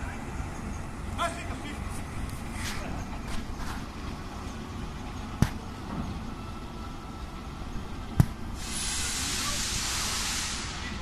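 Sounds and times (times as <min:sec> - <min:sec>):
locomotive idling: 0:00.0 - 0:11.0.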